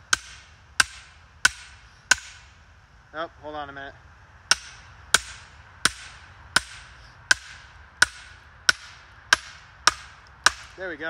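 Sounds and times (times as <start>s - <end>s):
hammer striking axe head: 0.1s - 2.4s, 4.5s - 10.8s.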